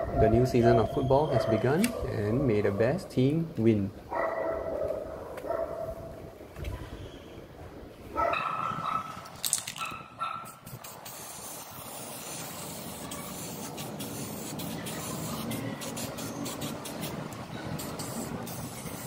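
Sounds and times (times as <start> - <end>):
spray can hissing: 10.4 - 19.0.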